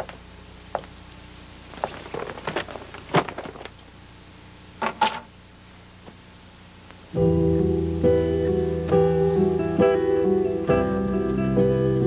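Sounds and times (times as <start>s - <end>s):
light metallic clicks and clinks: 0.1s - 1.8s.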